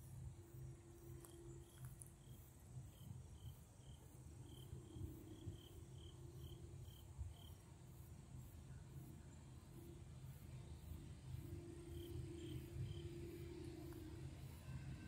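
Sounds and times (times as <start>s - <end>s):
faint low rumble: 0.0s - 15.0s
insects chirping: 0.1s - 15.0s.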